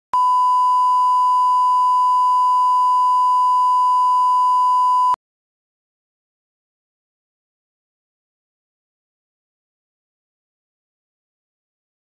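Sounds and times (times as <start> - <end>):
steady test tone beep: 0.2 - 5.2.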